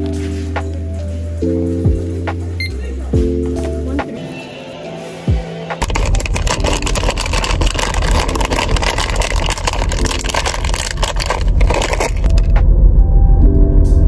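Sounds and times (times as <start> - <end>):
plastic wrapper crinkling: 5.8 - 12.5
steady low rumble: 5.8 - 14.0.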